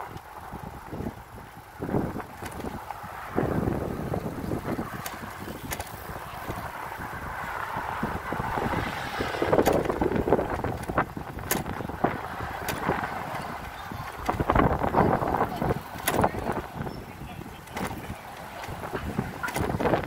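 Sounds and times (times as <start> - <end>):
bicycle rolling road noise: 0.0 - 20.0
wind on microphone: 0.0 - 20.0
sharp clicks: 15.6 - 16.6.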